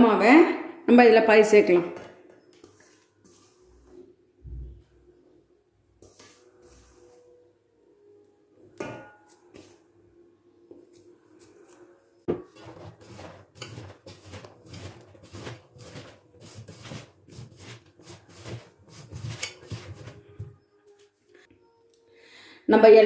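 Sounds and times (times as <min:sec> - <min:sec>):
hand tossing food in a steel pot: 0:12.3 - 0:20.4.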